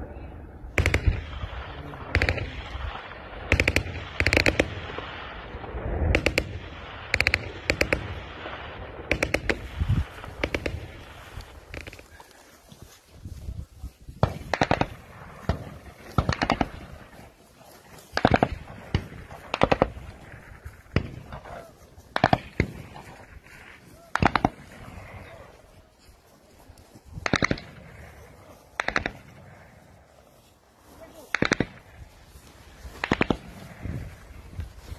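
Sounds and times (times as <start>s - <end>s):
rifle shots: 0.7s - 12.0s, 14.2s - 17.3s, 18.1s - 25.5s, 27.2s - 29.5s, 31.3s - 32.0s, 32.9s - 33.9s.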